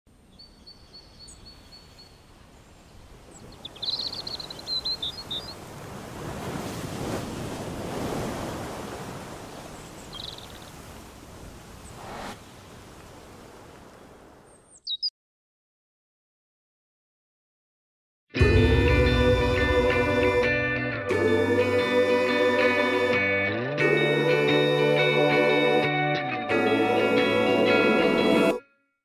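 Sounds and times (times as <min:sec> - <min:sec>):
bird chirps: 0:00.3 - 0:02.2, 0:03.3 - 0:05.6, 0:09.8 - 0:10.8, 0:14.5 - 0:15.1
sea waves washing: 0:02.2 - 0:14.5.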